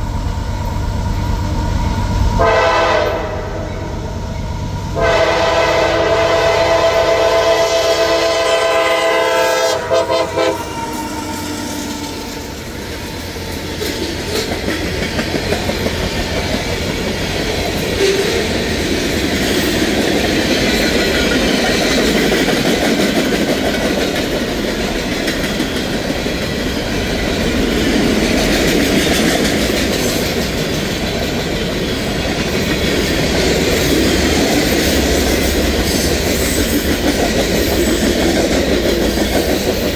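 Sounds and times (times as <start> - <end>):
clickety-clack of wheels on rails: 0.0 - 39.9
train cars rumbling: 0.0 - 39.9
locomotive air horn: 2.4 - 3.9, 4.9 - 12.6.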